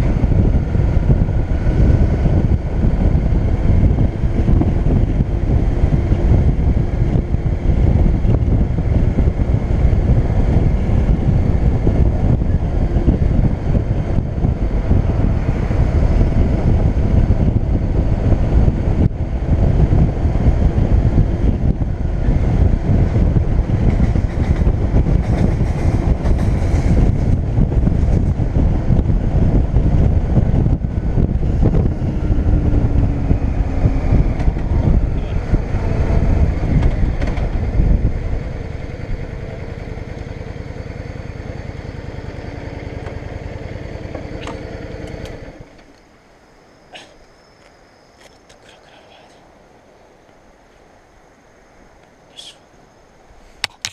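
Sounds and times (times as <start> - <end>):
heavy wind: 0.0 - 53.9
road rumble: 0.0 - 53.9
motorcycle engine: 31.7 - 45.8.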